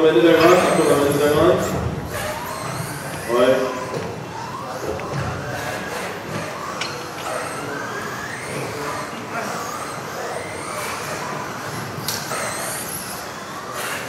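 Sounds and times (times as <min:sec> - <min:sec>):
electric rc buggy motors whining: 0:00.0 - 0:14.0.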